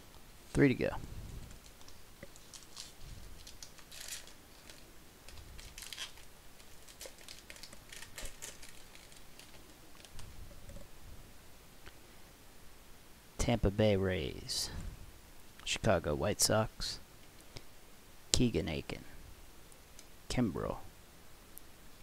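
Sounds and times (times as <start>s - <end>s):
plastic wrapper ripping: 1.5s - 10.3s
plastic wrapper crinkling: 1.5s - 10.8s.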